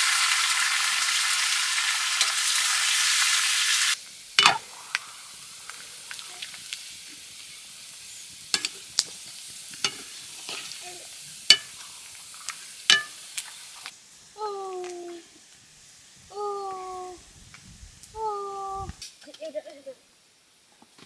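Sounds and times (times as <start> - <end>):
meat sizzling in wok: 0.0 - 20.7
metal ladle scraping pan: 9.8 - 10.8, 11.5 - 11.8, 12.9 - 13.2.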